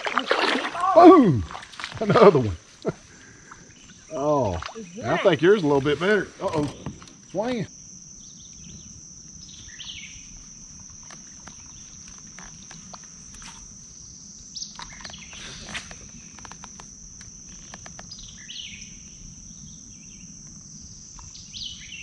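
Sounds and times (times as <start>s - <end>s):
insects droning: 0.0s - 22.0s
birds chirping: 14.0s - 16.5s.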